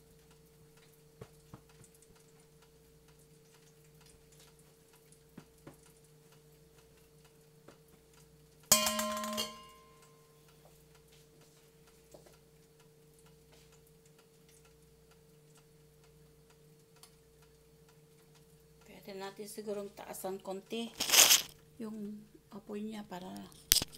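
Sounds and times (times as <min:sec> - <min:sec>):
hot oil ticking and popping: 0:00.0 - 0:21.8, 0:23.2 - 0:23.9
deep fryer humming: 0:00.0 - 0:23.9
loud metallic clink: 0:08.7 - 0:10.0.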